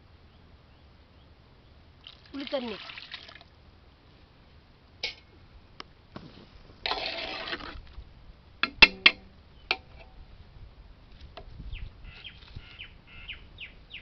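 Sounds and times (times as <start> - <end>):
ladle sloshing gravy: 6.7 - 7.9
ladle clinking against metal pot: 8.6 - 10.1.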